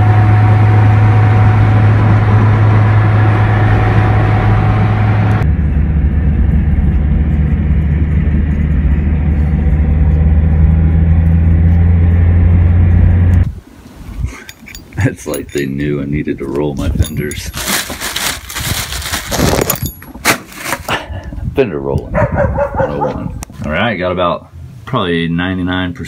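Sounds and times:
car engine drone: 0.0s - 13.6s
road noise inside car: 0.0s - 13.6s.

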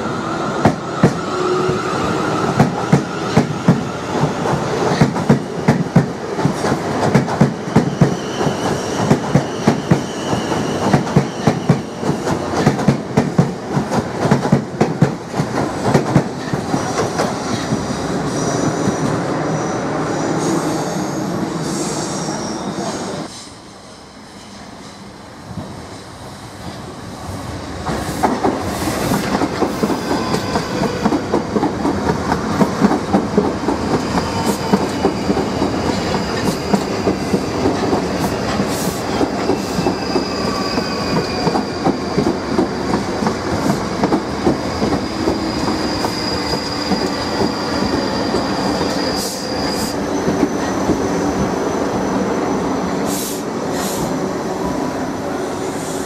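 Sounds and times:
train wheels clattering on track: 0.6s - 19.2s, 27.8s - 51.6s, 53.0s - 54.2s.

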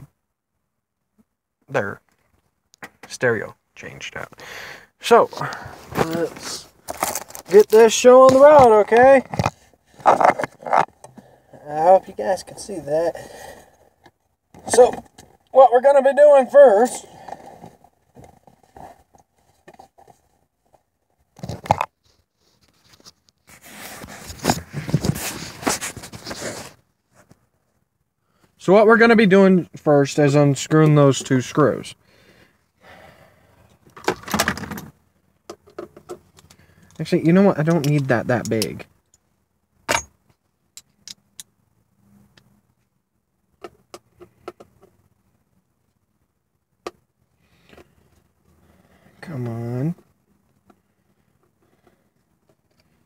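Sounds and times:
hand rubbing on microphone: 22.4s - 27.3s.

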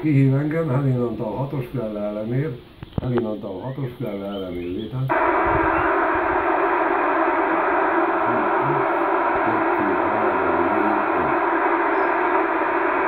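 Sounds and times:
radio static hiss: 5.1s - 13.0s.

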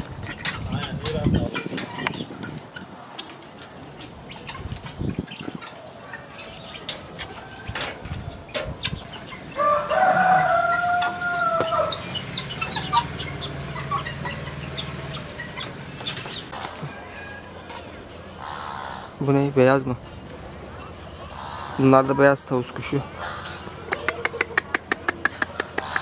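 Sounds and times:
chickens clucking: 0.0s - 26.0s
rooster crowing: 9.5s - 15.2s, 16.6s - 19.1s.

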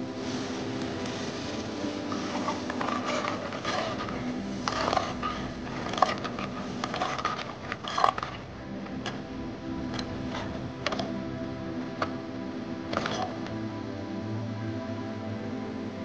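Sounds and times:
utensils clinking and scraping a pan: 0.0s - 11.3s, 12.8s - 13.6s
soft background music: 0.0s - 16.0s.

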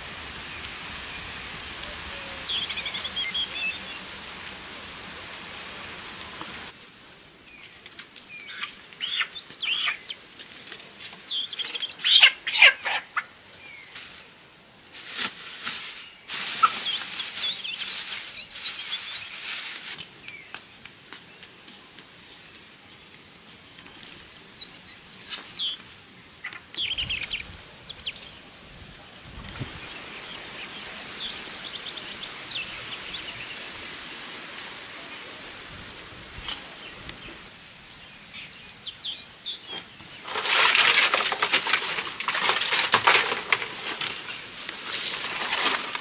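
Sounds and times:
wind hiss: 0.0s - 7.6s, 13.4s - 21.1s, 23.2s - 39.7s
small birds chirping: 0.5s - 4.3s, 7.5s - 14.2s, 15.8s - 28.5s, 29.5s - 34.4s, 36.3s - 45.8s
chicken squawking: 12.0s - 13.3s.

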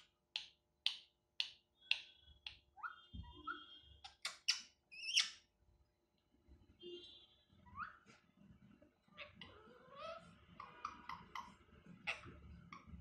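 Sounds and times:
parrot calling: 9.0s - 13.0s.

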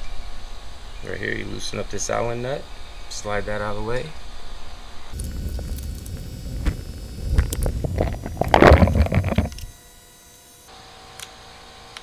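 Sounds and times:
microphone handling noise: 5.2s - 9.7s.

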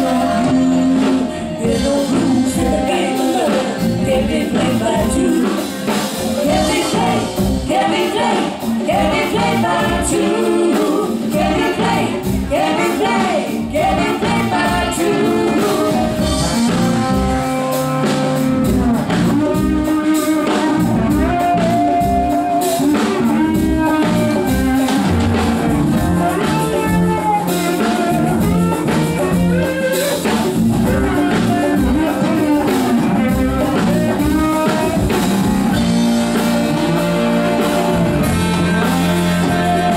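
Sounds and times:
women singing: 0.0s - 16.7s, 38.4s - 39.9s
live band playing: 0.0s - 39.9s.

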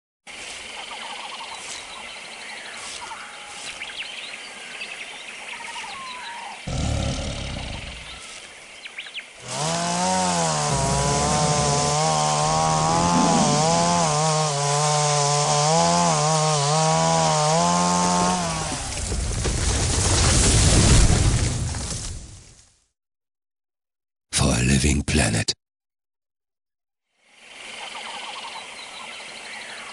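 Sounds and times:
birds calling: 0.4s - 15.0s
chainsaw running: 9.4s - 19.1s.

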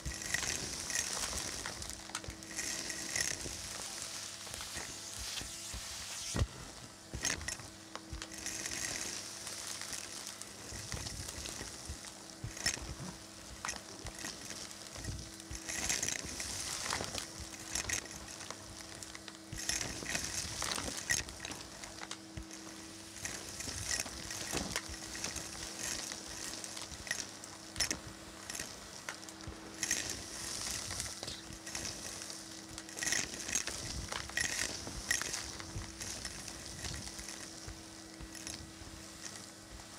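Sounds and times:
debris rattling up vacuum hose: 0.0s - 39.9s
vacuum cleaner motor hum: 0.0s - 39.9s.

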